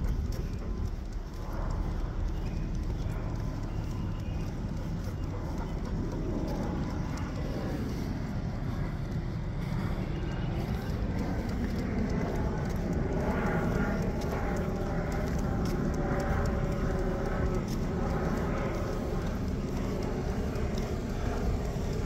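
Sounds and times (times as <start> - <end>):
jet airliner flying overhead: 0.0 - 22.0.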